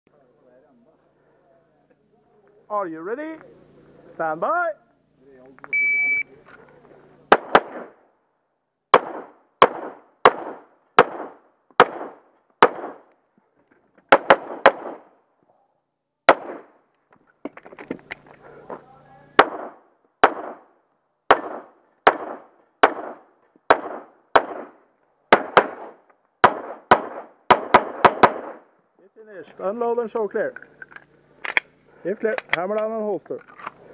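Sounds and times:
pistol shots with ringing echo: 7.3 - 8.0, 8.9 - 13.1, 14.1 - 15.1, 16.3 - 16.8, 19.3 - 20.7, 21.3 - 28.6.

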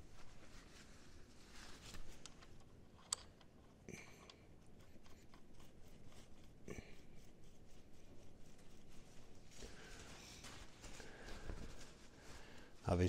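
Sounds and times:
cloth rag rustling: 0.0 - 2.6, 7.8 - 13.0
metal hardware clicks and taps: 3.0 - 3.5.

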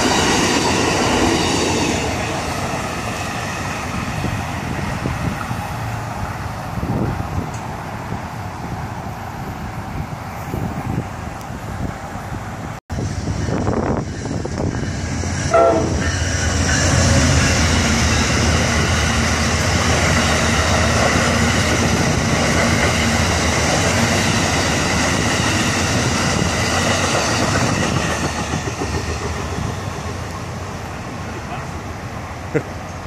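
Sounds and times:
train wheels clattering over rails: 13.5 - 30.6
train horn blast: 15.5 - 17.4.

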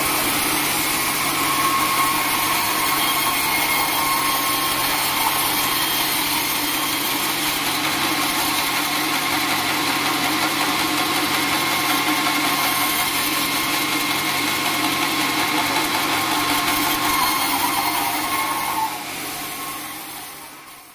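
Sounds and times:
band saw cutting log: 0.0 - 20.9.

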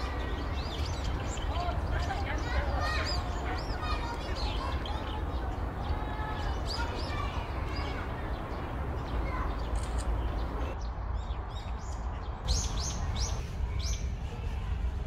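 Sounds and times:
songbirds chirping: 0.0 - 15.0.

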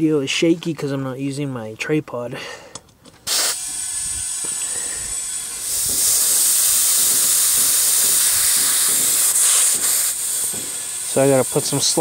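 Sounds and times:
air hissing from tyre valve: 3.2 - 12.0.

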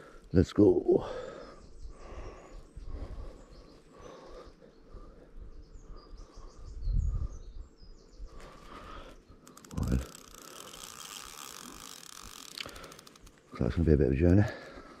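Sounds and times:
birds chirping: 0.0 - 15.0
fishing reel ticking: 9.4 - 14.9.

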